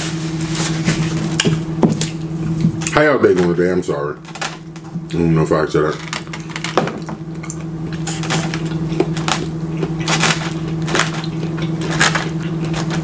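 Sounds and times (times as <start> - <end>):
steady low hum: 0.0 - 13.0
chewing and crunching: 7.4 - 13.0.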